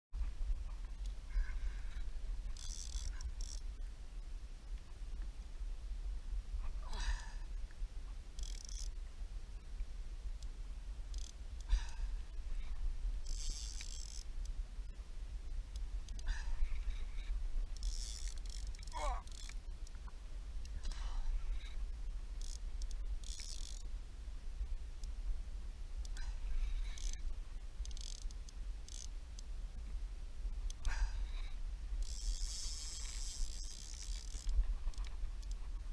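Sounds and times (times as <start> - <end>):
wind and water rumble: 0.2 - 35.9
wind rumble on microphone: 23.8 - 35.9.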